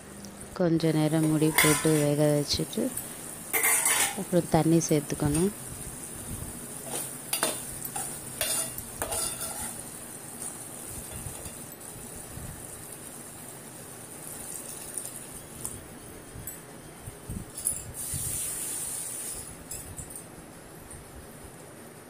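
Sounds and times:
masala sizzling: 0.0s - 19.8s
metal spoon scraping metal pot: 1.2s - 2.2s, 3.5s - 4.3s, 6.9s - 9.8s.

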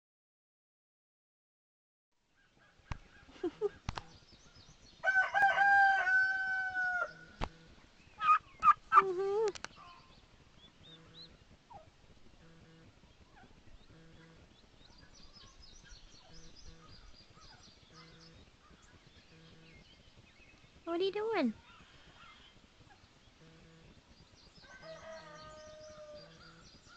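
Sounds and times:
rooster crowing: 5.0s - 7.4s, 24.6s - 26.7s
faint high chirping: 13.2s - 19.8s, 24.6s - 26.9s.

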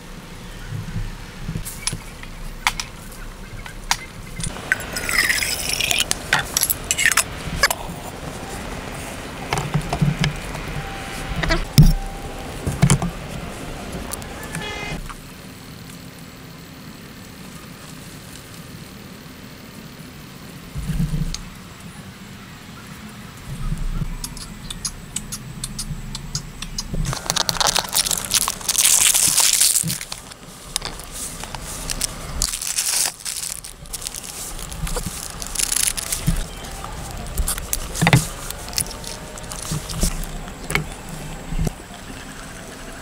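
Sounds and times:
campfire crackling: 1.6s - 19.7s, 24.1s - 43.0s
plastic wrappers crinkling and tearing: 27.0s - 41.7s.

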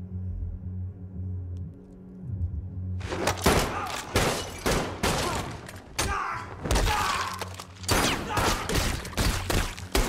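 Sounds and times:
low steady music score: 0.0s - 5.0s.

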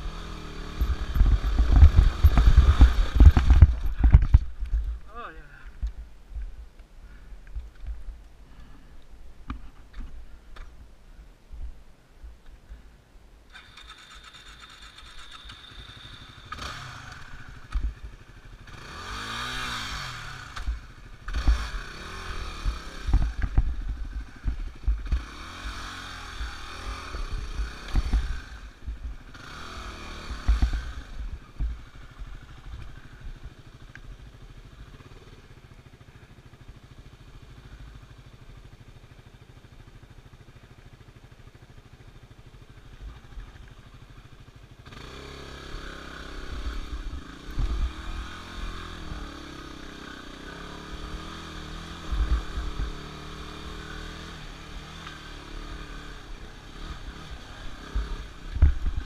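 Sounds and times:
motorcycle engine revving: 0.0s - 5.4s, 13.5s - 59.0s
clatter of bike over rocks: 0.8s - 5.1s.

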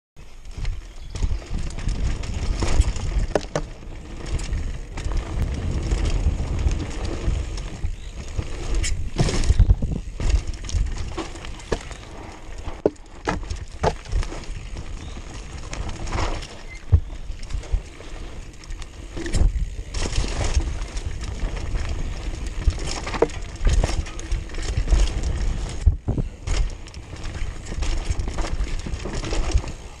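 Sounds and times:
bike knocking and rattling: 0.2s - 30.0s
wind rumbling on microphone: 0.2s - 30.0s
tyres rolling over dirt: 0.3s - 30.0s.

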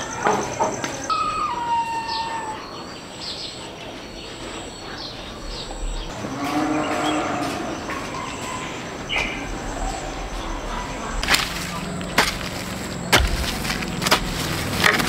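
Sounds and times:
small birds chirping: 0.0s - 15.0s
farm animal drawn-out call: 6.1s - 12.2s.

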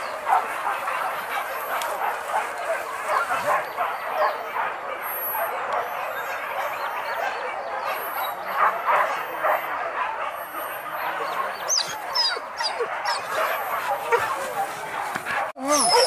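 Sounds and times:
dogs barking and yelping: 0.0s - 16.0s.

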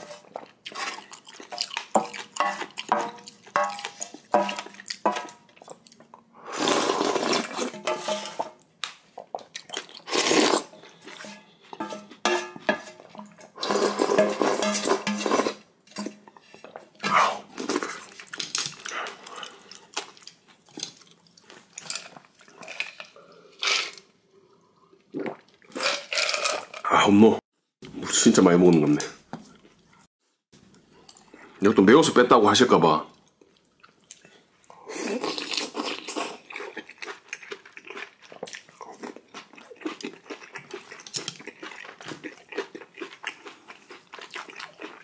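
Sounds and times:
noodles slurped: 6.4s - 7.8s, 9.6s - 11.6s, 13.5s - 14.6s.

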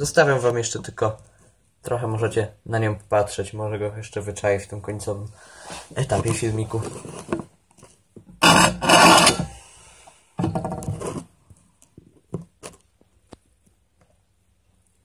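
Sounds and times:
rubbing on phone microphone: 5.6s - 9.4s.

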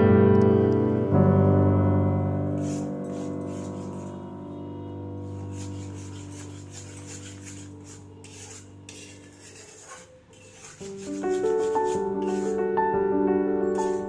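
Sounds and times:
metal spatula scraping batter: 2.6s - 4.2s, 5.2s - 12.8s, 13.7s - 14.0s.

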